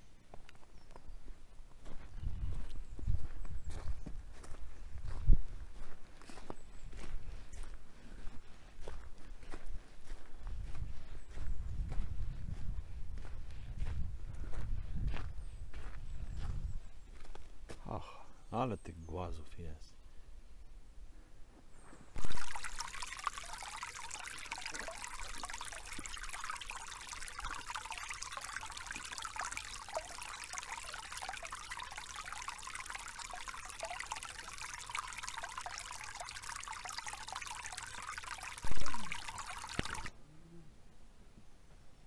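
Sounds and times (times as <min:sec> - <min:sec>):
stream trickling over rocks: 0:22.2 - 0:40.1.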